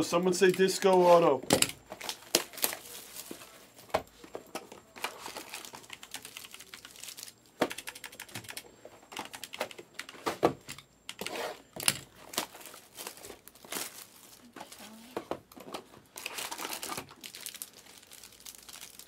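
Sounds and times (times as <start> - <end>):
plastic wrap crinkling: 0.6 - 8.2, 11.6 - 19.0.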